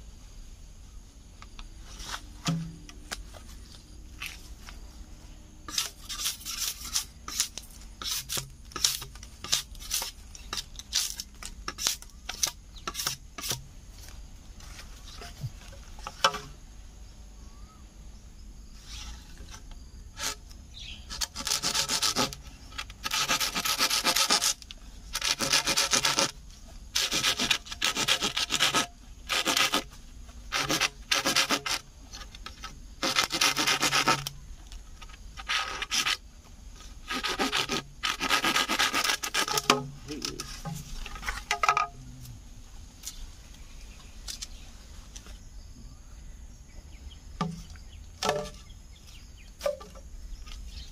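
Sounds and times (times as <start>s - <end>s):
machete chopping bamboo: 2.4s - 3.2s, 5.7s - 13.7s, 37.0s - 42.0s, 47.4s - 48.7s, 49.6s - 50.0s
blade sawing bamboo: 5.7s - 13.6s, 18.8s - 34.4s, 35.0s - 36.2s, 36.8s - 41.9s.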